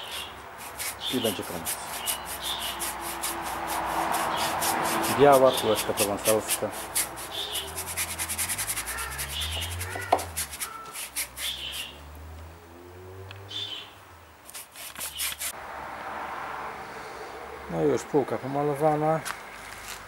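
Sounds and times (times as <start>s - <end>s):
paintbrush strokes on wood: 0.0s - 12.0s, 14.5s - 15.6s.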